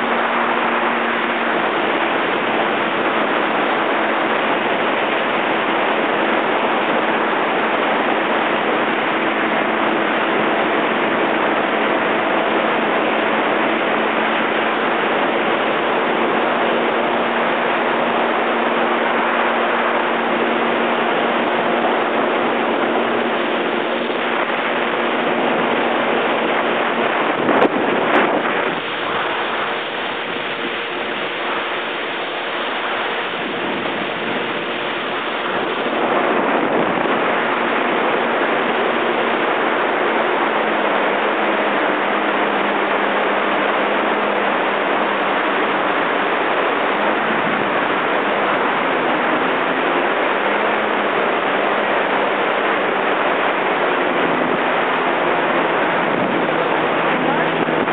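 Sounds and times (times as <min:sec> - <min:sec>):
jet ski engine humming: 0:00.0 - 0:57.9
rushing water: 0:00.0 - 0:57.9
wind noise on microphone: 0:00.0 - 0:57.9.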